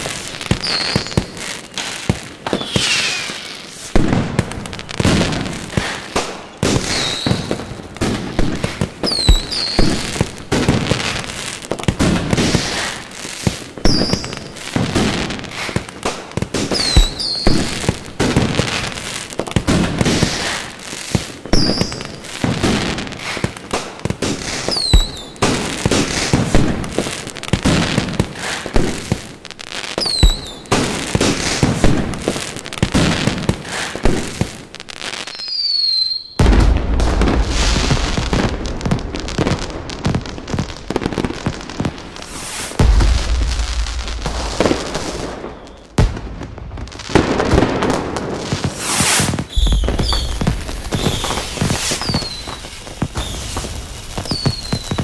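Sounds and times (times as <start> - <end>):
firework whistles: 0.0 - 4.2, 4.9 - 7.7, 9.0 - 10.2, 12.4 - 14.4, 16.6 - 17.8, 20.1 - 22.2, 24.3 - 26.4, 30.0 - 31.9, 35.2 - 46.2, 48.5 - 55.0
fireworks bangs and booms: 0.0 - 55.0.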